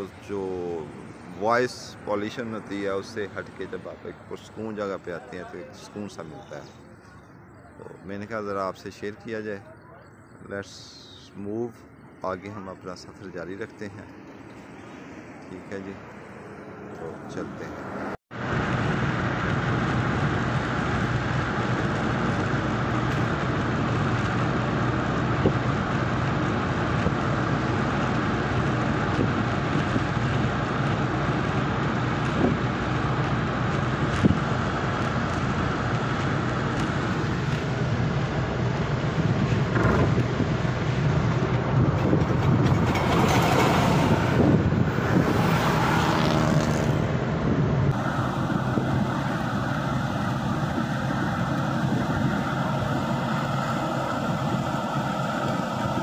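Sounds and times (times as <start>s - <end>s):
car engine hum: 0.0s - 56.0s
road and wind noise: 0.0s - 56.0s.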